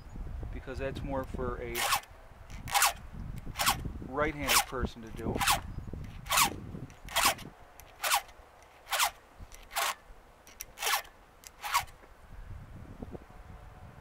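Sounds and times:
file rasping on chain: 0:01.7 - 0:03.8, 0:04.4 - 0:11.9.

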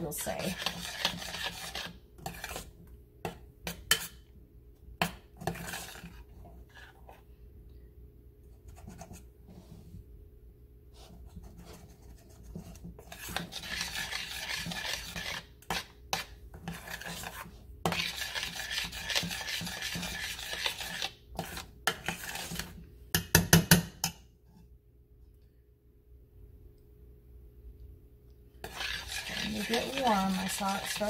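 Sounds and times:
spoon scraping saucepan: 0:00.0 - 0:04.2, 0:05.0 - 0:07.2, 0:11.5 - 0:24.2, 0:28.6 - 0:31.0.

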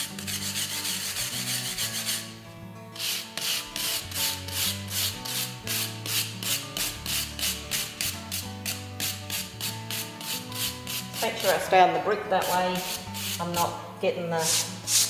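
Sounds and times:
wire brush scraping brick: 0:00.0 - 0:02.3, 0:03.0 - 0:13.7.

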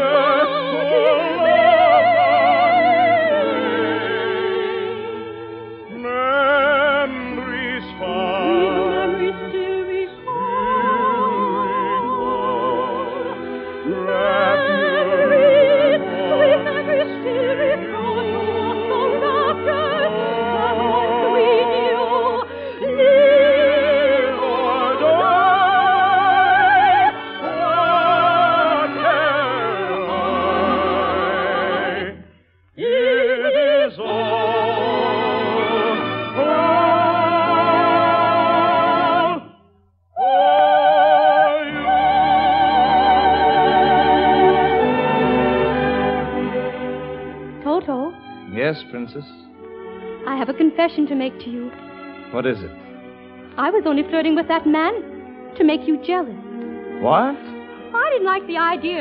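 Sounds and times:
operatic voice singing: 0:00.0 - 0:39.5
orchestral accompaniment: 0:00.0 - 0:59.0.

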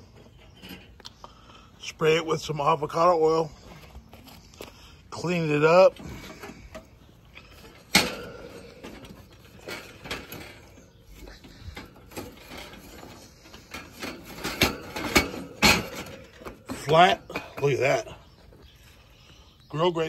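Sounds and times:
metal clanking on grill grates: 0:00.0 - 0:01.5, 0:05.1 - 0:18.4.

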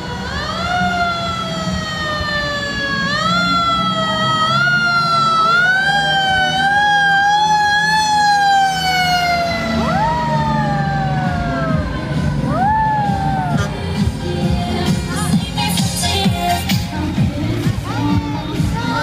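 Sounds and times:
second siren wail sweeping up: 0:00.0 - 0:13.7
fire truck siren wailing: 0:00.0 - 0:14.0
low engine rumble: 0:00.0 - 0:19.0.

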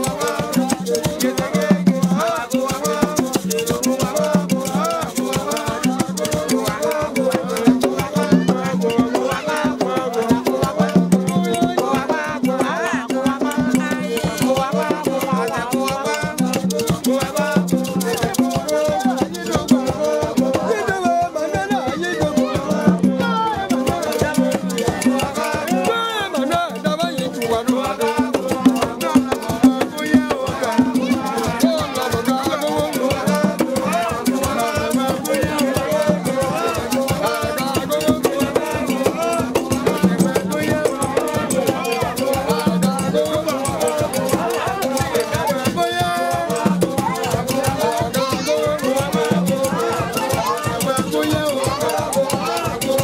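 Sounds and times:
people singing together: 0:00.0 - 0:53.0
drums beating: 0:16.4 - 0:53.0
shaken rattles: 0:23.9 - 0:53.0.

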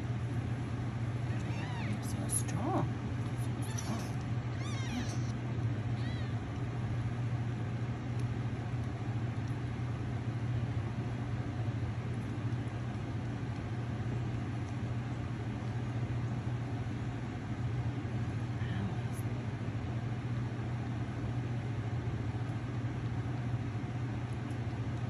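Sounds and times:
kitten mewing: 0:01.3 - 0:02.4, 0:03.4 - 0:05.4, 0:06.0 - 0:06.6.

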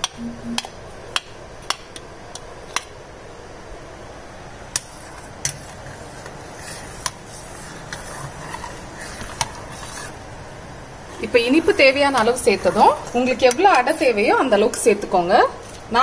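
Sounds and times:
milk boiling hiss: 0:04.7 - 0:15.9.

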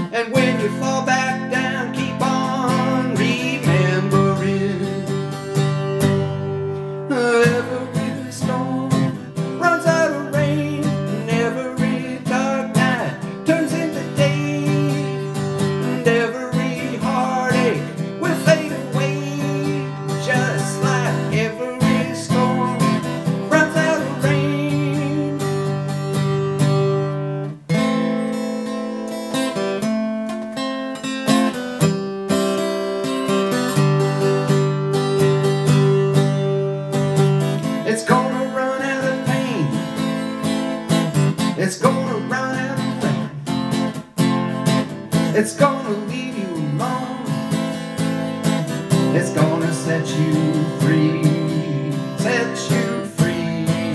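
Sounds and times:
acoustic guitar strummed and picked: 0:00.0 - 0:53.9.

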